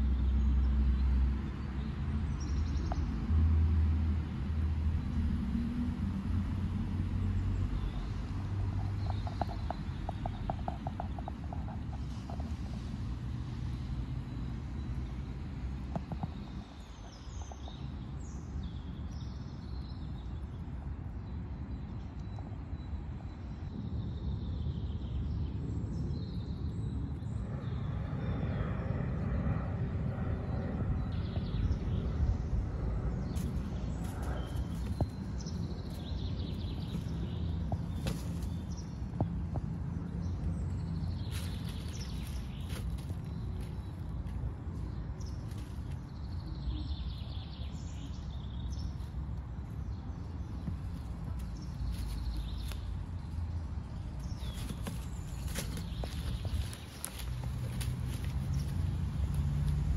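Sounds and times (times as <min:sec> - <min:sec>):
small birds chirping: 0:07.3 - 0:29.4, 0:30.4 - 0:59.9
steady low rumble: 0:15.0 - 0:59.9.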